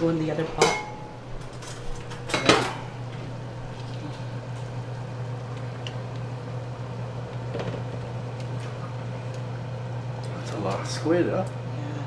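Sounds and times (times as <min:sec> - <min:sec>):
pot boiling: 0:00.0 - 0:12.0
steady low hum: 0:00.0 - 0:12.0
metal pot clanking on stovetop: 0:00.6 - 0:03.0.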